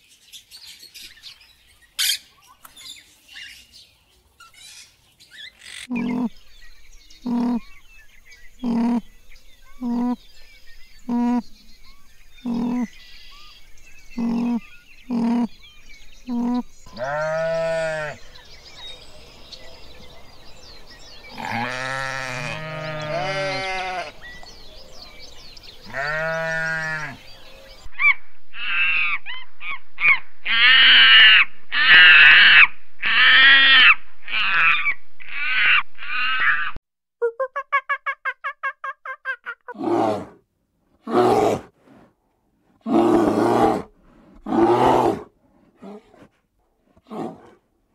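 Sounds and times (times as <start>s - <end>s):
high animal calls: 5.6s - 6.4s, 7.2s - 7.7s, 8.6s - 9.0s, 12.4s - 13.0s, 14.2s - 15.6s, 21.4s - 24.2s
sheep bleating: 16.4s - 18.2s, 21.4s - 24.2s, 25.9s - 27.2s.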